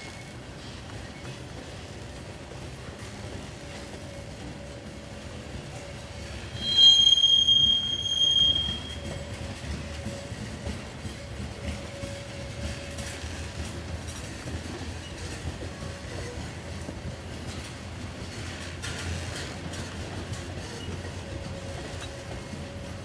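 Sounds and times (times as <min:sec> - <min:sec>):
train wheels rumbling on rails: 0:00.0 - 0:23.0
high-pitched wheel squeal: 0:06.5 - 0:09.3.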